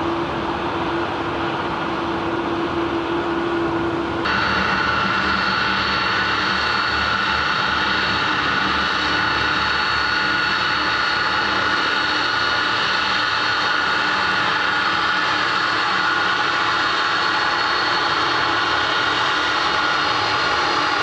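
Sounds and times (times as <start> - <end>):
jet engines running: 0.0 - 21.0.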